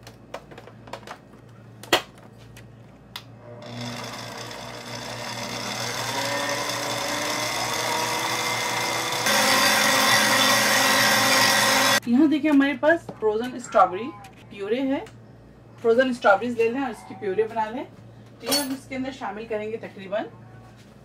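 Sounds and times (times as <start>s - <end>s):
stand mixer running: 3.5s - 12.0s.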